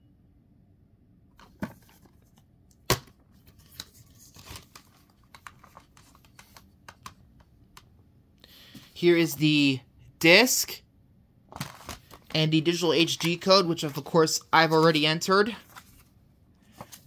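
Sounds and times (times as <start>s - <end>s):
plastic disc case clicking and snapping: 2.8s - 7.9s.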